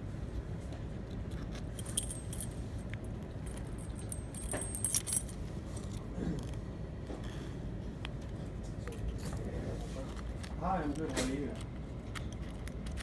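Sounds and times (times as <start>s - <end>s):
low background hum: 0.0s - 13.0s
keys jingling on a ring: 1.7s - 5.4s.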